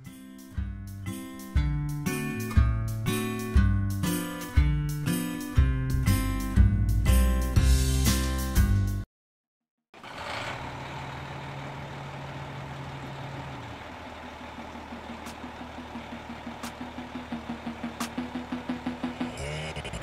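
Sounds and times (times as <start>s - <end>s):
music: 0.0s - 9.0s, 16.6s - 20.0s
car engine idling: 10.0s - 20.0s.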